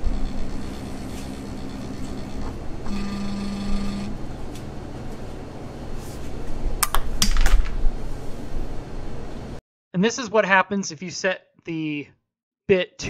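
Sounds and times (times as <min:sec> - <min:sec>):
stepper motor whine: 0:00.0 - 0:04.4.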